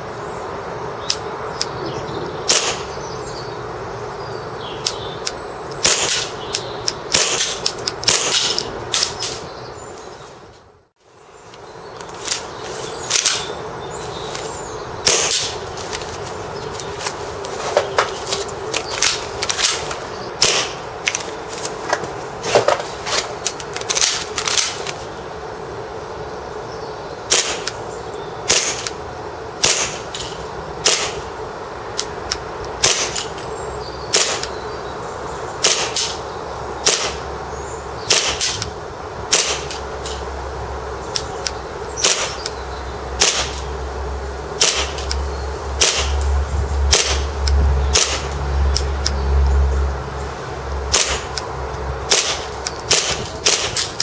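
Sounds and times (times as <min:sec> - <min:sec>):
airsoft pistol shots: 0:02.5 - 0:02.8, 0:05.8 - 0:06.3, 0:07.1 - 0:09.2, 0:15.0 - 0:15.6, 0:20.4 - 0:20.8, 0:27.3 - 0:27.7, 0:28.5 - 0:28.9, 0:29.6 - 0:30.1, 0:30.8 - 0:31.2, 0:32.8 - 0:33.3, 0:34.1 - 0:34.5, 0:35.6 - 0:36.2, 0:36.8 - 0:37.2, 0:38.1 - 0:38.6, 0:39.3 - 0:39.8, 0:42.0 - 0:42.4, 0:43.2 - 0:43.6, 0:44.6 - 0:45.1, 0:45.8 - 0:46.2, 0:46.9 - 0:47.3, 0:47.9 - 0:48.3, 0:50.9 - 0:51.3, 0:52.1 - 0:54.0.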